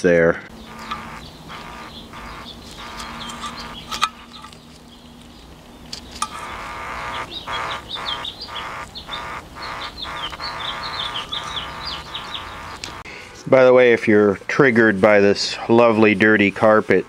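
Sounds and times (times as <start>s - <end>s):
buzzing hum: 0.0s - 13.2s
birds chirping: 0.0s - 17.0s
sharp clicks of wires: 0.7s - 13.1s.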